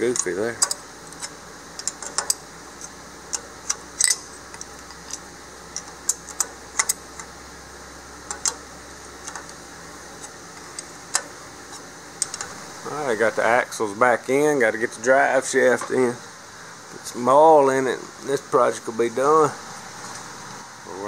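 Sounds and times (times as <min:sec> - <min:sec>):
steady low hum: 0:00.0 - 0:21.0
wrench clinking on nut: 0:00.1 - 0:05.2.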